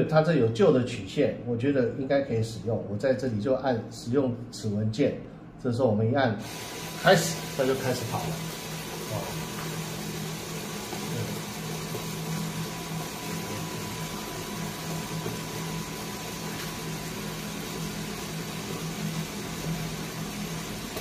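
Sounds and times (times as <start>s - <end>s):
coffee roaster motor hum: 6.4s - 21.0s.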